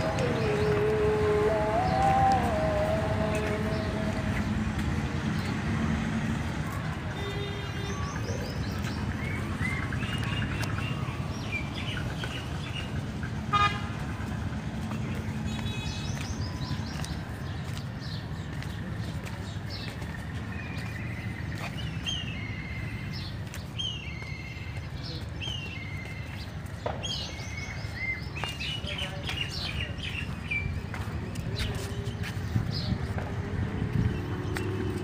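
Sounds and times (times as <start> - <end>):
birds chirping: 0.0 - 35.0
traffic noise: 0.0 - 35.0
loud car horn toot: 7.1 - 8.0, 13.5 - 14.0.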